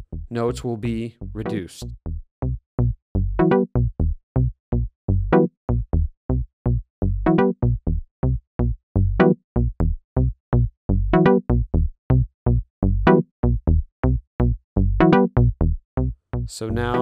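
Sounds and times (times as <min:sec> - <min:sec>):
synth bass notes: 0:00.0 - 0:17.0.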